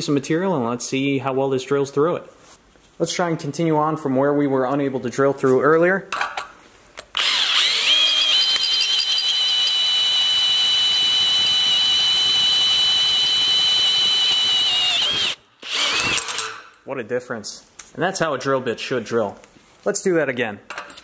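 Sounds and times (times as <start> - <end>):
electric drill boring through metal: 7.2 - 16.7.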